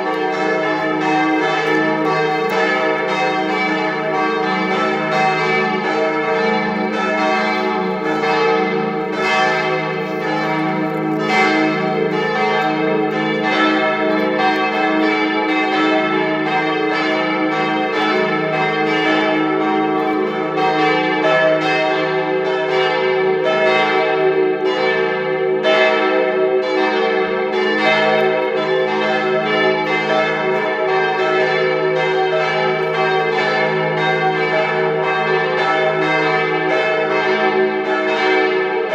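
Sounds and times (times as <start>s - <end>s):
church bells ringing: 0.0s - 38.9s.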